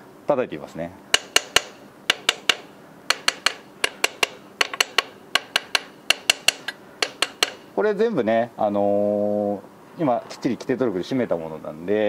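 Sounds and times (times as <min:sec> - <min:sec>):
hammer tapping metal nuts: 0:01.1 - 0:07.8.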